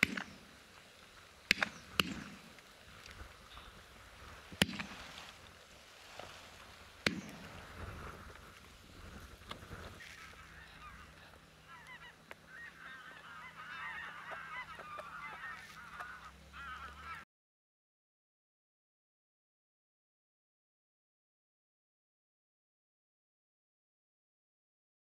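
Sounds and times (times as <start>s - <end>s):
shotgun shots: 0.0s - 0.4s, 1.5s - 2.5s, 4.6s - 5.0s, 7.0s - 7.5s
geese honking: 9.9s - 17.2s.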